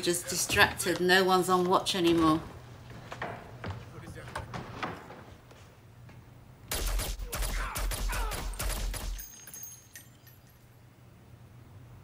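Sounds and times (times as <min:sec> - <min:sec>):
rapid gunfire: 0:06.7 - 0:09.2
faint high clinks: 0:09.2 - 0:11.0.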